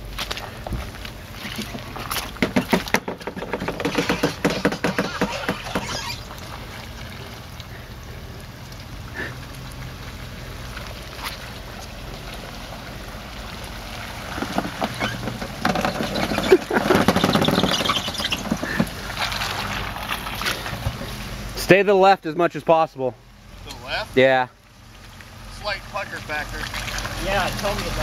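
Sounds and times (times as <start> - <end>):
low engine hum: 0.0 - 28.0
tyres in mud: 0.0 - 28.0
knock: 2.4 - 6.0.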